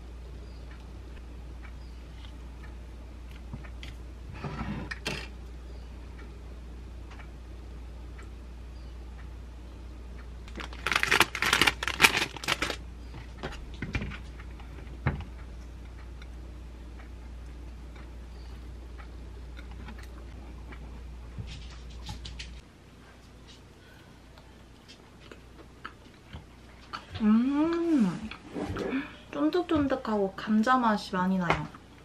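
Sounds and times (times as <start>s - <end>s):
plastic container and utensils clattering: 10.5s - 12.8s.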